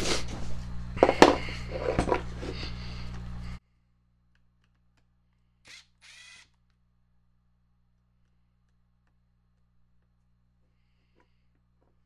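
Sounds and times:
steady low hum: 0.0s - 5.8s
cordless driver whirring: 5.6s - 6.6s.

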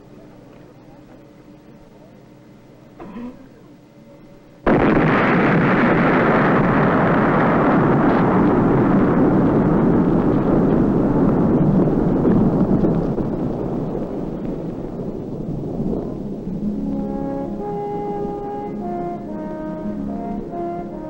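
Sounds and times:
explosion blast wave: 4.7s - 21.0s
loud rumble: 4.7s - 21.0s.

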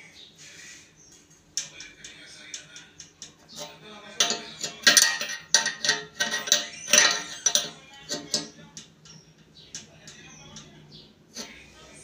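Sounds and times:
wrench clinking on metal nut: 1.6s - 10.7s.

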